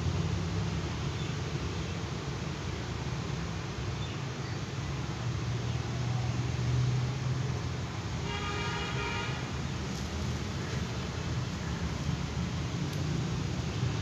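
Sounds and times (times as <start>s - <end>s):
traffic rumble: 0.0s - 14.0s
vehicle horn: 8.2s - 9.5s.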